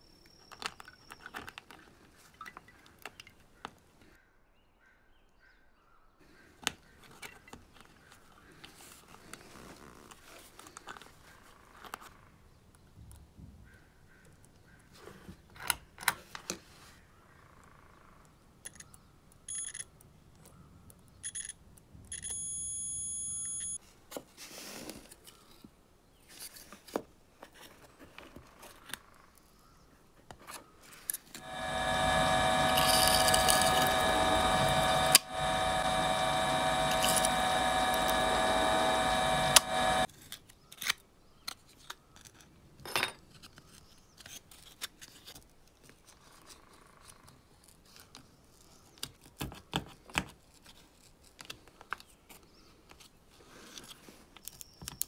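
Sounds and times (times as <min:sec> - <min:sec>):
continuity buzzer beeps: 0:22.2 - 0:23.8
small parts clicking: 0:31.1 - 0:40.1
small power tool running: 0:31.4 - 0:40.1.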